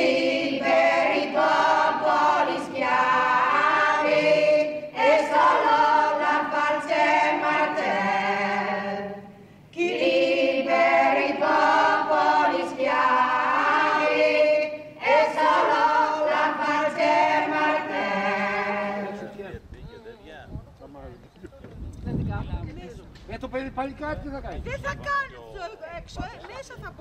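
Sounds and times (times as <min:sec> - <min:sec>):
choir singing unaccompanied: 0:00.0 - 0:19.4.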